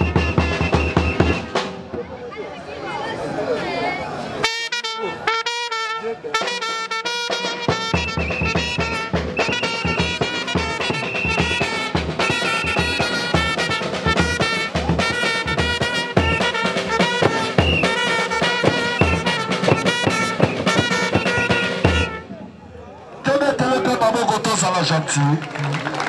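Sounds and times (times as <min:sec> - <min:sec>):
trumpets playing a brisk tune: 0:00.0 - 0:01.7, 0:04.4 - 0:22.4
snare drum beat: 0:00.0 - 0:01.9, 0:06.4 - 0:22.2
bass drum: 0:07.8 - 0:22.2.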